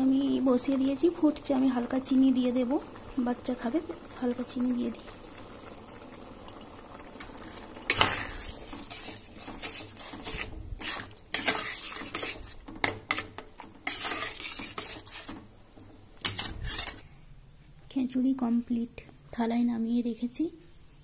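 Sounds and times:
thick food simmering: 0.0 - 17.1
utensil scraping a pan: 7.2 - 17.0.

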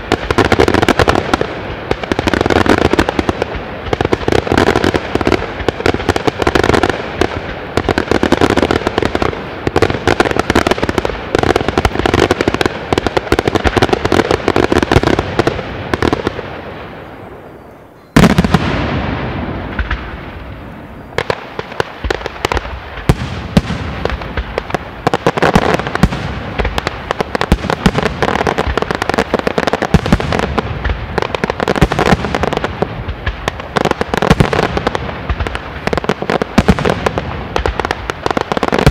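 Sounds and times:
fireworks bangs and crackling: 0.0 - 38.9.

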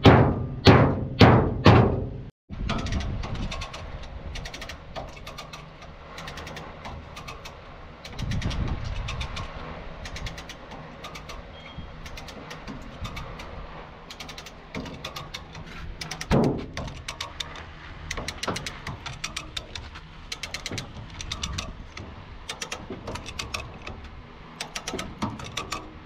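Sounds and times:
loud thump: 0.0 - 2.2
steady low rumble: 0.0 - 26.0
metallic ratchet clicks: 2.7 - 26.0.

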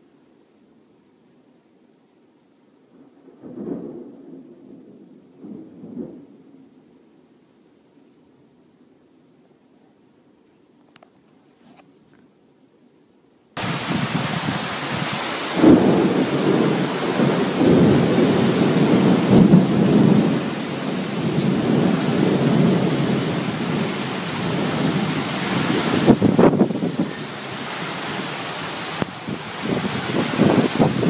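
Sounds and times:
rolling thunder: 3.4 - 6.3, 13.6 - 31.0
heavy rain: 13.6 - 31.0.

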